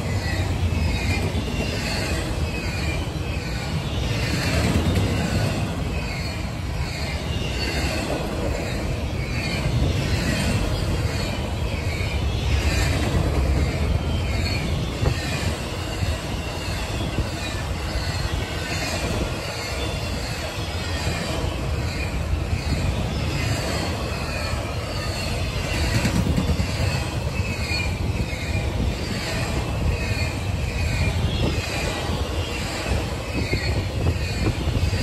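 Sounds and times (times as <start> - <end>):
freight train wheels rumbling on rails: 0.0 - 35.0.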